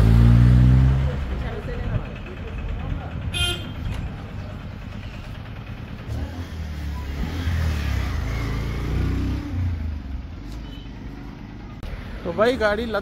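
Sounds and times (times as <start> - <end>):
vehicle engine revving: 0.0 - 2.1, 2.8 - 10.4.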